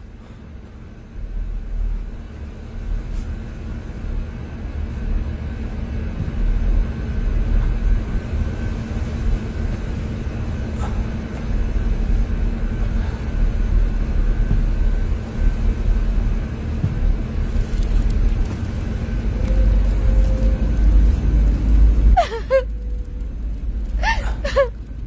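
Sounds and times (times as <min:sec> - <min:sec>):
faint steady hum: 0:00.0 - 0:25.0
car driving rumble: 0:09.3 - 0:25.0.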